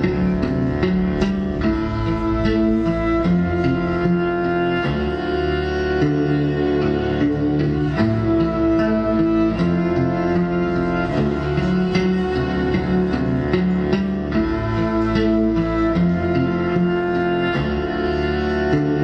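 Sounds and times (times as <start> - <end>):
steady percussive beat: 0.0 - 17.4
bowed electric cello: 0.0 - 19.0
looped cello parts: 0.0 - 19.0.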